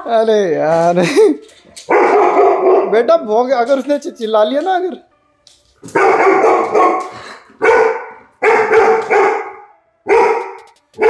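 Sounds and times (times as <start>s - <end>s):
dog barking: 1.9s - 3.1s, 5.9s - 11.0s.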